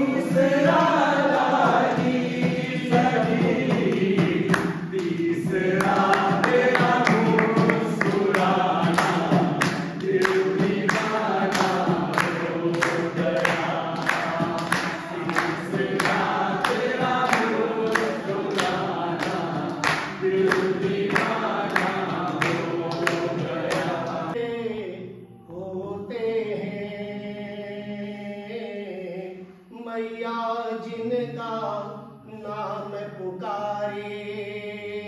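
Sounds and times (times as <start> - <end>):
rhythmic handclapping: 0.0 - 24.4
men singing together: 0.0 - 35.0.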